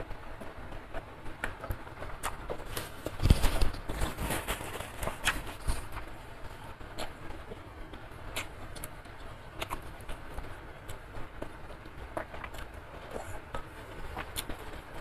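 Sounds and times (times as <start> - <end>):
chewing noodles: 8.3 - 15.0.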